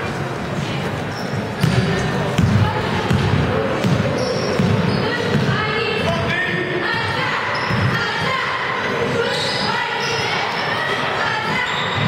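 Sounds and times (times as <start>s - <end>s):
people talking: 0.0s - 12.0s
basketball bouncing on wooden floor: 2.4s - 5.6s.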